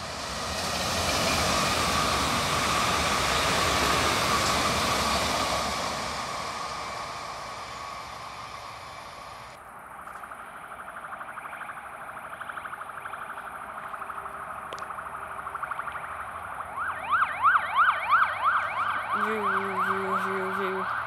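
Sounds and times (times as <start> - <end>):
emergency siren yelping: 0.0 - 21.0.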